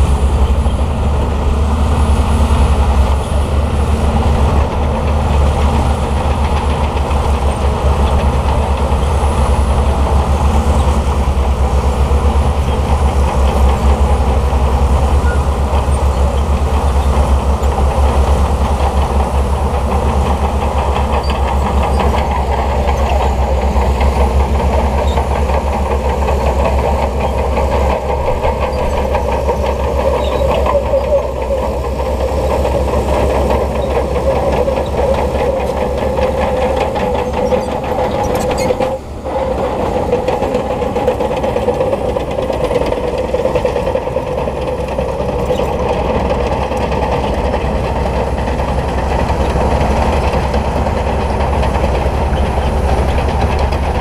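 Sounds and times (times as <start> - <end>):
bulldozer diesel engine running: 0.0 - 54.0
steel tracks clattering: 0.0 - 54.0.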